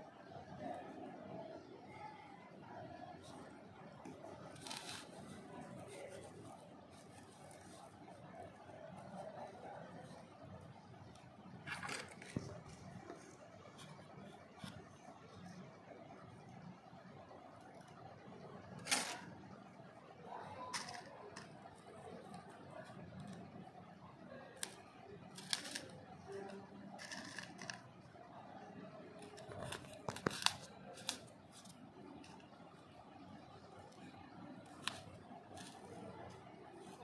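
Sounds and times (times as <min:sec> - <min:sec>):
soft handling noises: 0:02.7 - 0:16.0, 0:17.6 - 0:37.0
scratching on foam board: 0:04.5 - 0:08.1, 0:25.3 - 0:26.0, 0:27.0 - 0:27.8.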